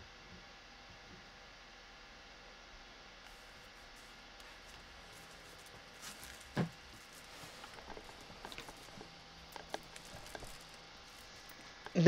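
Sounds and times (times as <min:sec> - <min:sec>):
rustles: 0:03.2 - 0:12.0.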